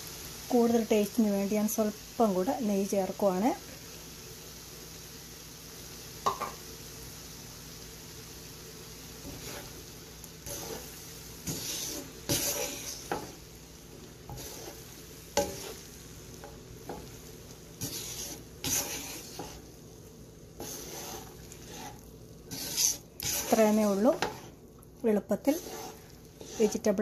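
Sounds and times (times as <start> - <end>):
spatula tapping pan: 6.2 - 6.6, 11.4 - 13.4, 14.3 - 15.8, 16.4 - 17.2, 17.8 - 19.7, 20.6 - 24.5, 25.6 - 26.9
spatula scraping rice in pan: 9.2 - 24.6, 25.3 - 27.0.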